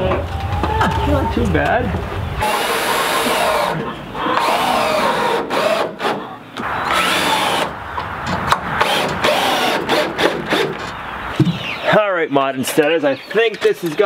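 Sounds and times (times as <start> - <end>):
power drill driving screws: 2.4 - 3.8, 4.4 - 6.2, 6.8 - 7.7, 8.8 - 10.9.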